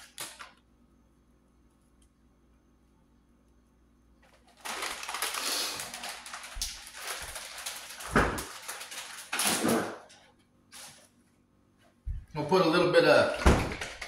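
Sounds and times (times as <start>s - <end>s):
plastic bag crinkling: 0.0s - 0.6s, 4.2s - 11.1s.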